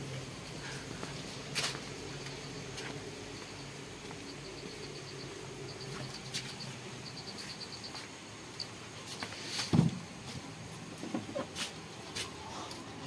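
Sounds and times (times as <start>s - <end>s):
steady low hum: 0.0s - 13.0s
rapid high chirps: 2.2s - 8.1s.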